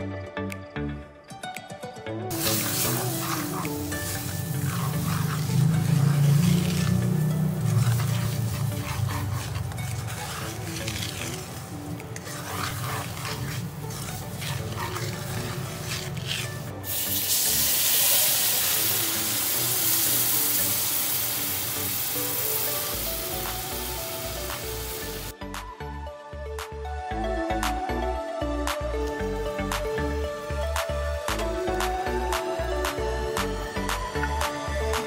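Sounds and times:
background music: 0.0s - 35.0s
loud sizzling hiss: 2.3s - 11.4s, 16.6s - 25.4s
spatula scraping a pan: 2.3s - 25.3s.

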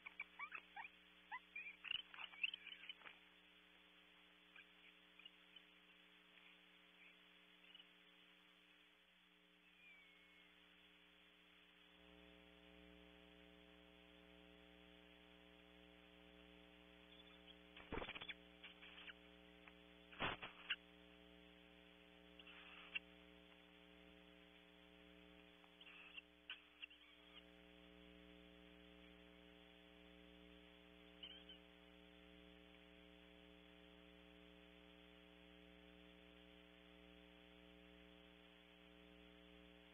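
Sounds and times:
electrical hum: 0.0s - 39.9s
owls knocking and scraping: 17.8s - 19.1s.

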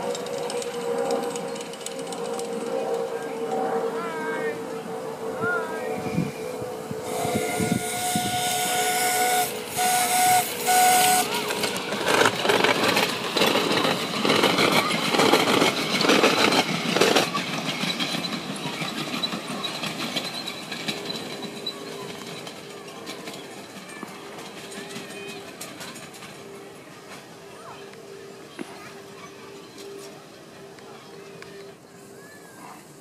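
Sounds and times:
train clattering on track: 0.0s - 5.2s, 6.2s - 33.0s
train whistle blasts: 5.8s - 11.8s.

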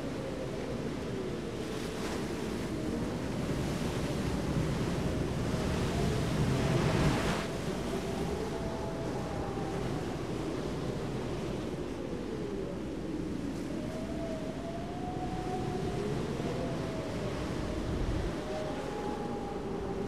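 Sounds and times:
wind: 0.0s - 20.0s
sea surf: 2.2s - 12.3s.

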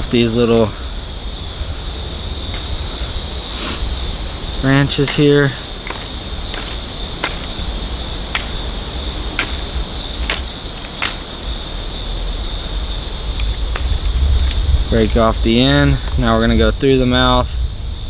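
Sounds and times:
high insect drone: 0.0s - 18.0s
wind rumbling on microphone: 0.0s - 18.0s
knife cutting twigs: 2.5s - 2.8s, 4.8s - 11.4s.

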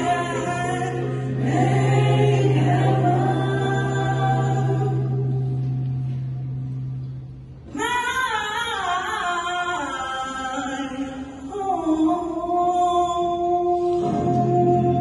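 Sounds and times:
mixed choir singing: 0.0s - 5.7s.

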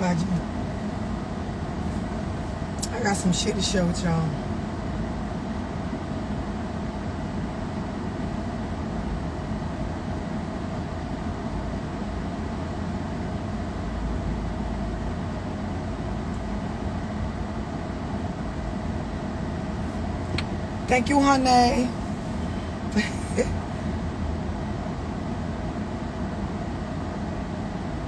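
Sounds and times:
car cabin engine rumble: 0.0s - 28.0s
faint steady whine: 0.0s - 28.0s
ventilation blowing: 0.0s - 28.0s.

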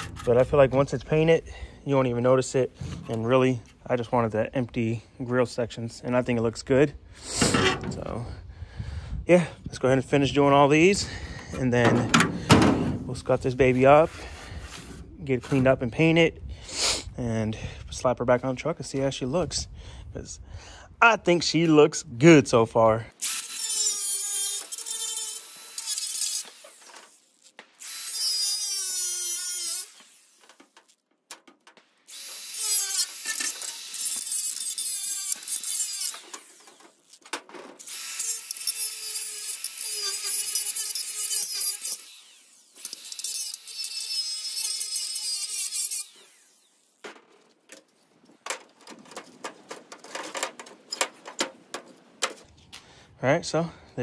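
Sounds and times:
grinder cutting metal: 23.2s - 31.0s, 32.1s - 47.0s.

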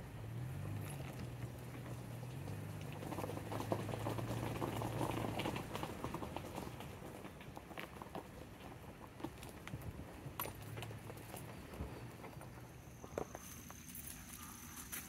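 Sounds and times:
footsteps through dry leaves: 13.3s - 15.0s.

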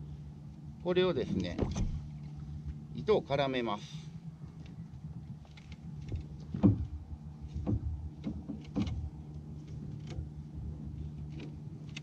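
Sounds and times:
steady low hum: 0.0s - 12.0s
knocks and rubs on paddle: 6.0s - 9.1s.

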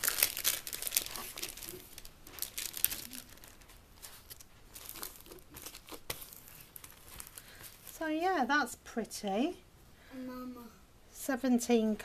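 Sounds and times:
plastic film crinkling: 0.0s - 8.3s.

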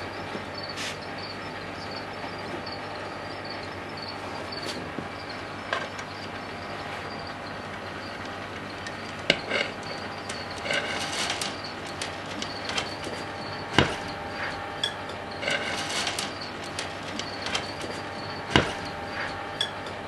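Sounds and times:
steady background hum: 0.0s - 20.0s
turtles scraping at glass: 9.1s - 19.5s.

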